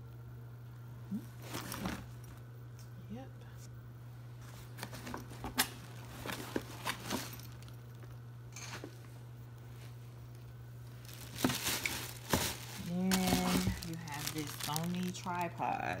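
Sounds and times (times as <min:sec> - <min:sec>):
steady low hum: 0:00.0 - 0:16.0
items tapping in cardboard box: 0:11.1 - 0:15.2.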